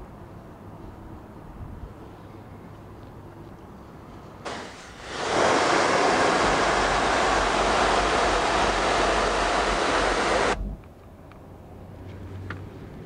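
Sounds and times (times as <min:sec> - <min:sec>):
pressure washer spraying: 0:04.5 - 0:10.6.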